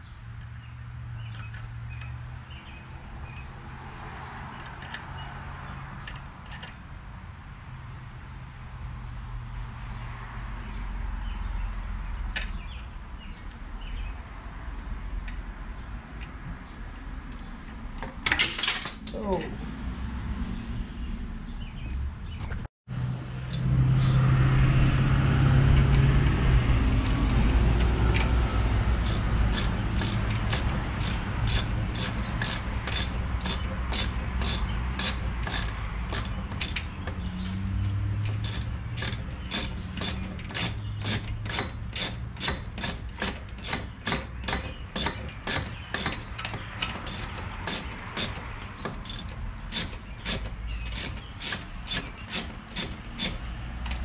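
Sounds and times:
ratchet wrench clicking: 0:29.0 - 0:54.0.

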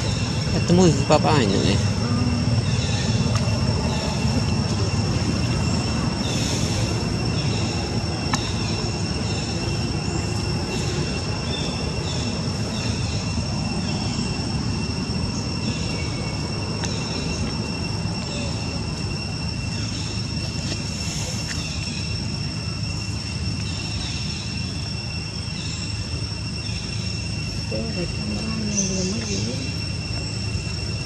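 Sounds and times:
low rumble: 0:00.0 - 0:20.3
faint chirps: 0:00.0 - 0:31.0
high-pitched insect drone: 0:00.0 - 0:31.0.

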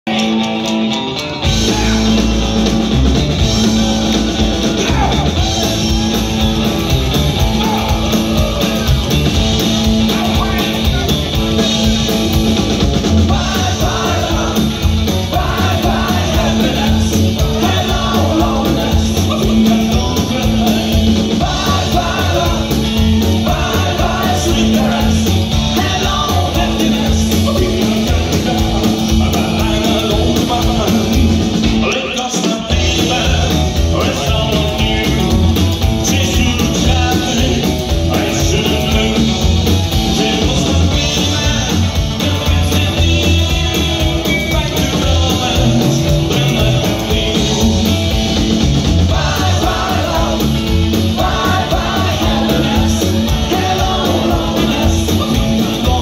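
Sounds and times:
drums: 0:00.0 - 0:56.0
electric guitar: 0:00.0 - 0:56.0
man singing into a microphone: 0:13.3 - 0:47.9, 0:51.2 - 0:56.0.

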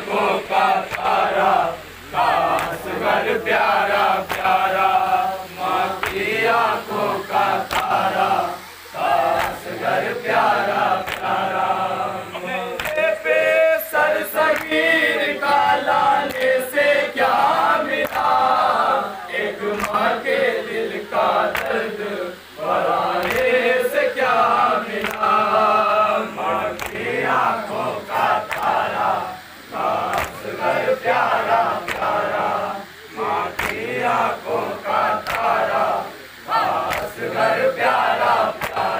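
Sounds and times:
lead reciter chanting: 0:00.0 - 0:38.9
men chanting a lament: 0:00.0 - 0:38.9.

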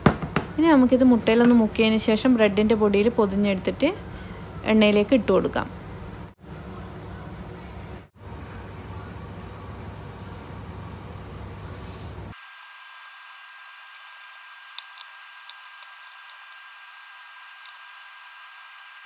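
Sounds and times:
food frying in hot oil: 0:08.6 - 0:19.0.

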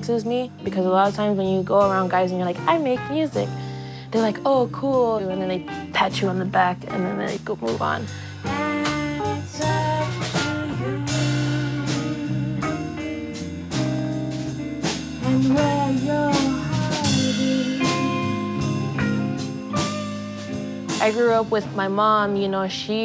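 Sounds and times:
electric bass: 0:00.0 - 0:23.0
electric guitar: 0:08.1 - 0:22.9.

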